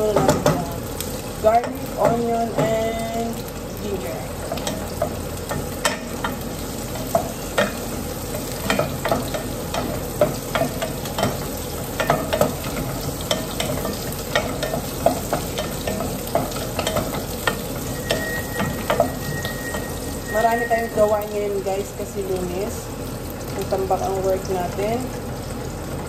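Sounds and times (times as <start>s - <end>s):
food sizzling in oil: 0.0s - 26.0s.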